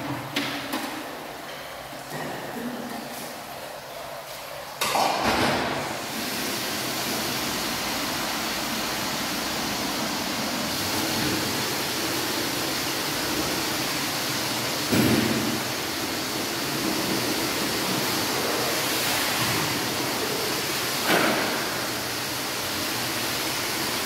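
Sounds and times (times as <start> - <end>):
tap water running into basin: 0.0 - 24.0.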